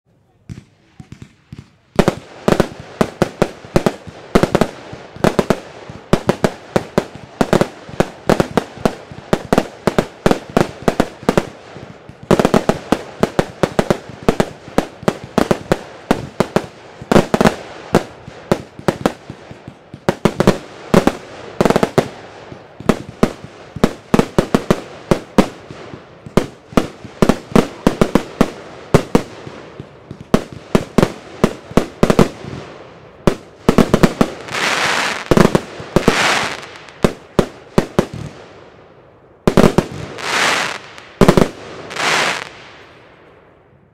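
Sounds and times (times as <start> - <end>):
fireworks sharp bangs: 0.4 - 43.9.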